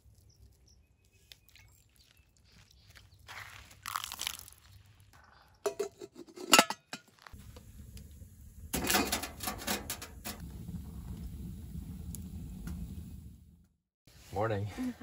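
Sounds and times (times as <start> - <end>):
coffee pot clattering on stove: 5.6 - 7.1, 8.7 - 10.4.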